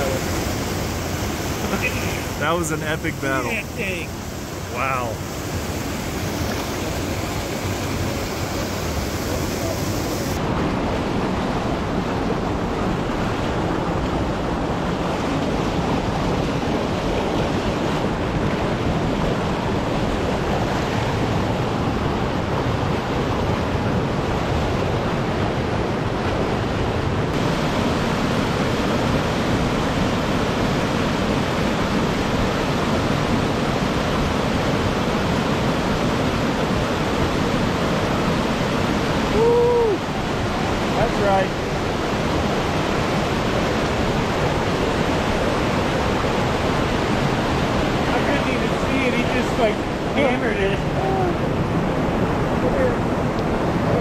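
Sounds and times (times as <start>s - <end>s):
creek rushing over boulders: 0.0s - 54.0s.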